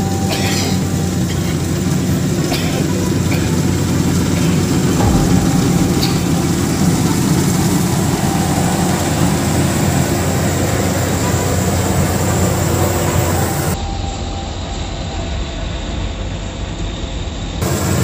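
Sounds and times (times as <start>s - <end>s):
combine harvester running: 0.0s - 15.1s, 15.7s - 18.0s.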